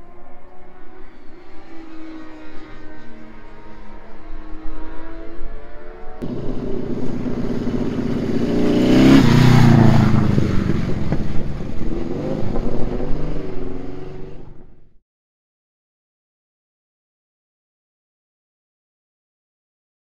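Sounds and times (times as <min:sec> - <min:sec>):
motorcycle engine revving: 0:00.2 - 0:15.0.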